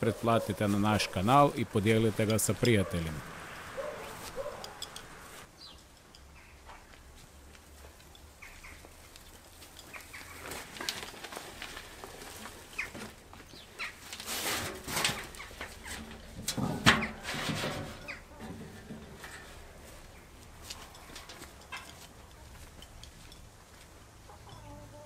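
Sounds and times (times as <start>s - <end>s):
soil sliding and pouring: 14.1s - 18.0s
wheelbarrow knock: 14.3s - 19.6s.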